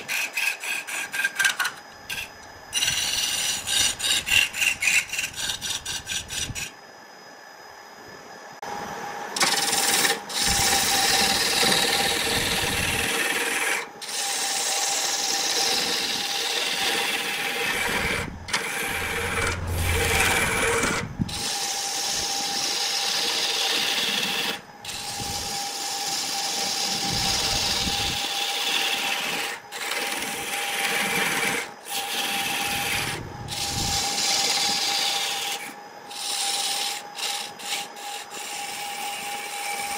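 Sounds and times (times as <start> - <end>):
chisel scraping wood on lathe: 0.0 - 6.7, 13.0 - 25.2, 28.4 - 39.8
lathe whine: 0.0 - 39.9.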